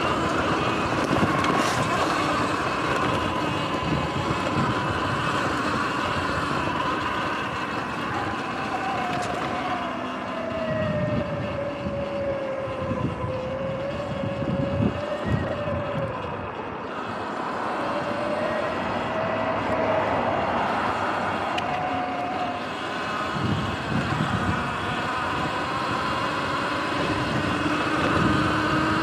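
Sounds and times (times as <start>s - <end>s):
tyres rumbling over grass: 0.0s - 10.1s
electric motor whine: 0.0s - 29.0s
lower whine dropping in pitch: 0.0s - 29.0s
wind: 0.0s - 29.0s.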